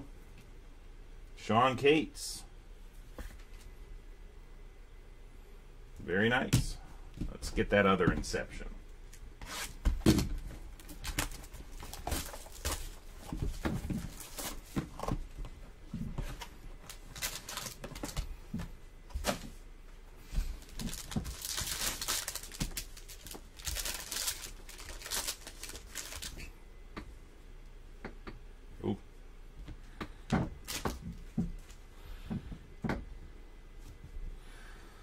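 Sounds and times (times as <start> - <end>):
foil wrapper crinkling and tearing: 10.8 - 13.1, 16.8 - 18.2, 20.6 - 26.5, 30.6 - 31.0.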